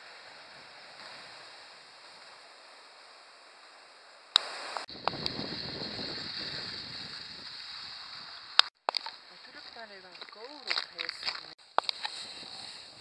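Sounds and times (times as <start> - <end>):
wind on microphone: 4.5 - 8.7.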